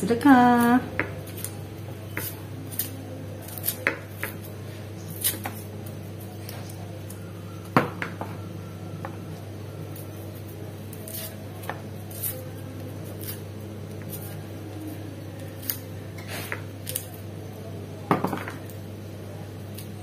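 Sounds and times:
knife slicing shallots: 0.5 - 5.7, 10.9 - 17.2.

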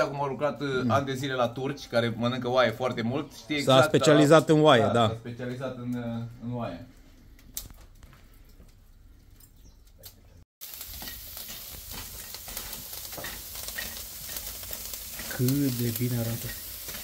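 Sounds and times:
fat popping and crackling: 7.3 - 8.9, 9.8 - 17.0
meat sizzling on grill: 10.6 - 17.0.

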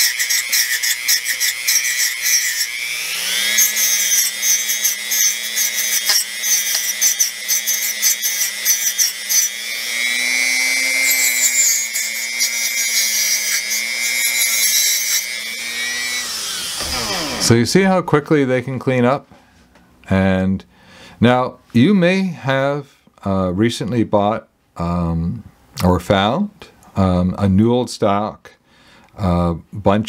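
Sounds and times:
rotary tool motor spinning: 0.0 - 17.5.

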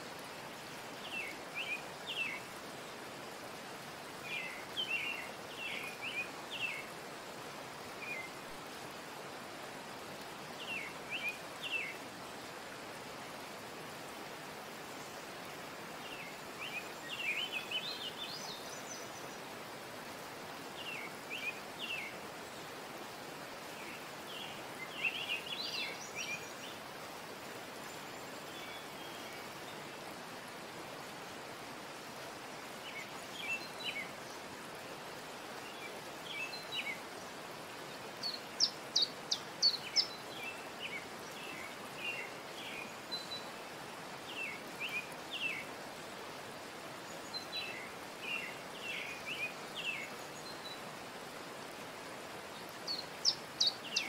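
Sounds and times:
steady hiss: 0.0 - 54.0.

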